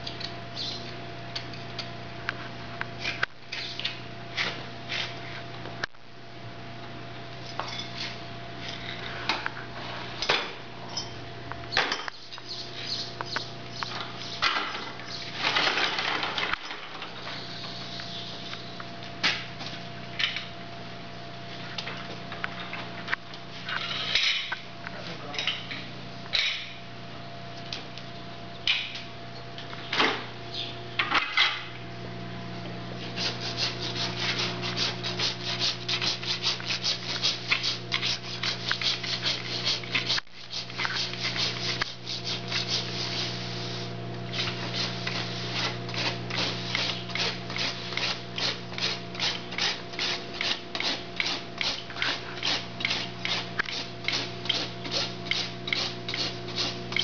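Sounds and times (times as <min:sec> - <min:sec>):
steady low hum: 0:00.0 - 0:57.0
rasp filing hoof: 0:33.2 - 0:42.9, 0:45.5 - 0:57.0.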